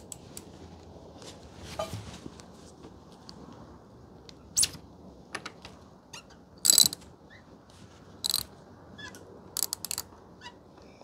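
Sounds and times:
ratchet wrench clicking: 0:06.6 - 0:07.0, 0:08.2 - 0:08.5, 0:09.6 - 0:10.1.

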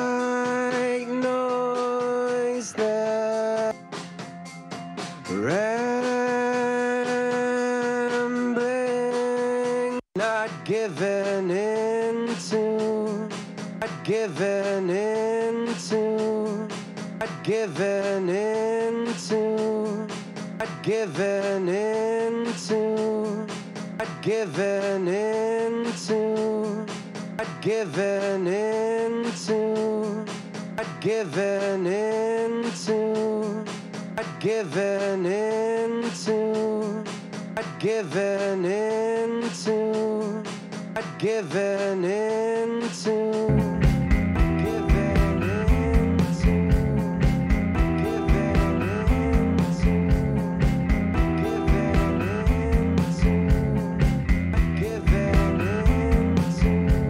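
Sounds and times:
bass: 0:00.0 - 0:18.4, 0:43.5 - 0:57.0
drums keeping a steady beat: 0:00.0 - 0:57.0
electric guitars: 0:43.5 - 0:57.0.

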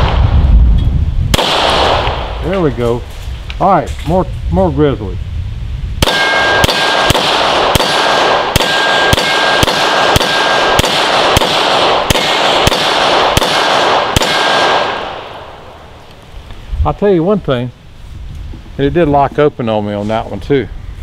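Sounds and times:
pistol shots: 0:01.3 - 0:02.4, 0:06.0 - 0:15.7
steel targets ringing: 0:06.0 - 0:07.2.

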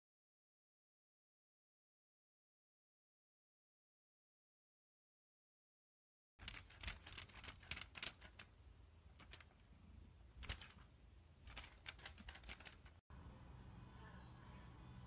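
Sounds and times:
faint clicks and rustles: 0:06.4 - 0:13.0
low hum: 0:13.1 - 0:15.0.

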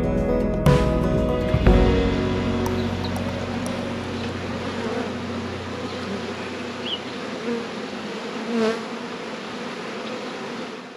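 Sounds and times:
honeybees buzzing: 0:01.6 - 0:10.9.

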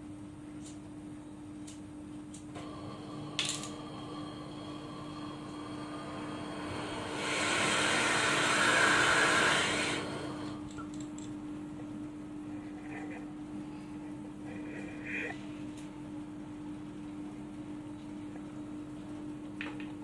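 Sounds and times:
flame rushing: 0:02.6 - 0:10.6
gas torch hissing: 0:02.6 - 0:10.7.

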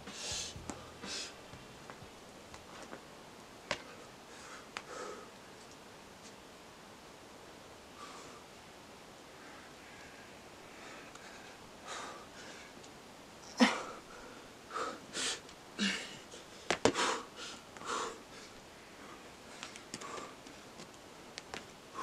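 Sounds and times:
man's forceful breaths: 0:00.0 - 0:01.4, 0:10.7 - 0:12.8, 0:13.6 - 0:20.8.

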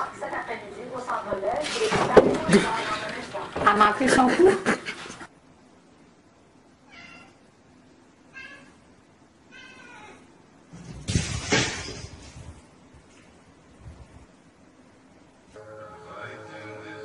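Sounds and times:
cat meowing: 0:06.8 - 0:07.4, 0:08.3 - 0:08.8, 0:09.5 - 0:10.3.

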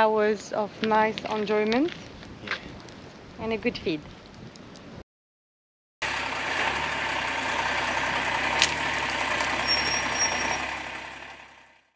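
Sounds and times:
truck engine running: 0:06.0 - 0:11.9.

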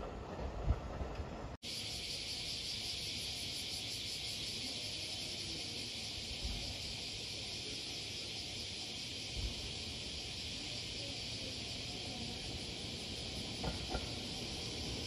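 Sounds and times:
high-pitched insect drone: 0:01.6 - 0:15.0.

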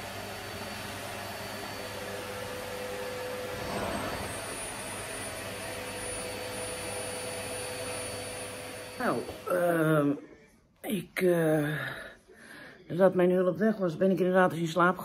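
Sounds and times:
vacuum cleaner running: 0:00.0 - 0:09.6.

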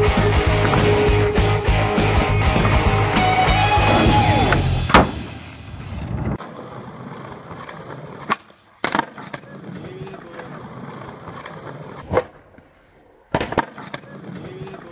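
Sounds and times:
skateboard wheels rolling on concrete: 0:00.0 - 0:14.9
skateboard clacking on ground: 0:06.4 - 0:12.0, 0:13.4 - 0:14.9.

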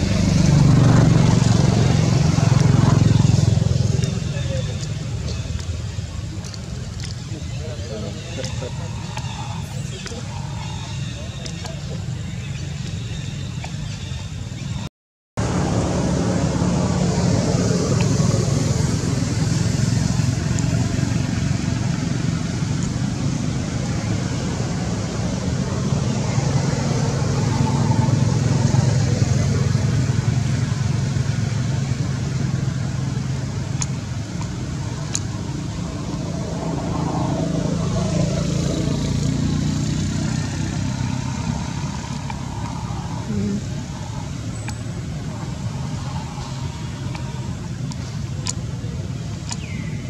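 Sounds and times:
engine running low rumble: 0:00.0 - 0:50.0
outdoor background noise: 0:00.0 - 0:50.0.

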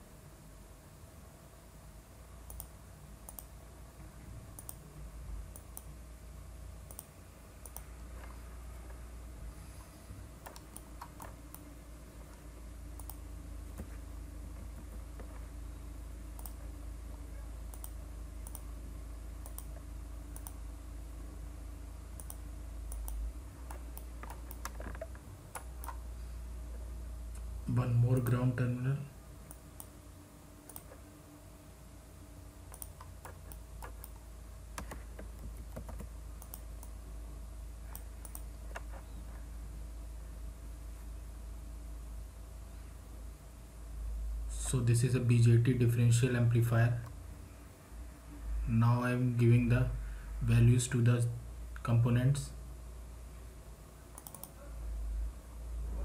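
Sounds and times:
low steady hum: 0:00.0 - 0:56.0
computer mouse clicks: 0:02.5 - 0:03.5, 0:04.5 - 0:04.8, 0:06.9 - 0:08.4, 0:10.4 - 0:11.7, 0:13.0 - 0:13.9, 0:16.3 - 0:16.6, 0:17.7 - 0:18.7, 0:19.4 - 0:20.6, 0:22.2 - 0:26.0, 0:30.7 - 0:31.0, 0:32.7 - 0:34.2, 0:34.8 - 0:37.0, 0:37.9 - 0:39.2, 0:54.1 - 0:54.6.

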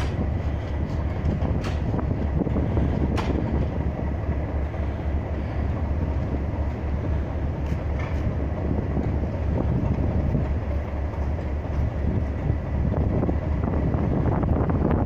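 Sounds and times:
diesel locomotive engine rumbling: 0:00.0 - 0:15.0.

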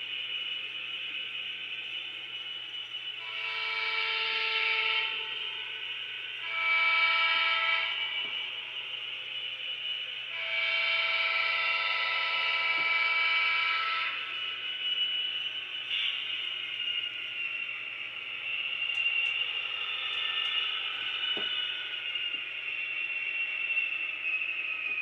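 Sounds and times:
diesel horn blasts: 0:03.2 - 0:05.3, 0:06.4 - 0:08.3, 0:10.3 - 0:14.3.

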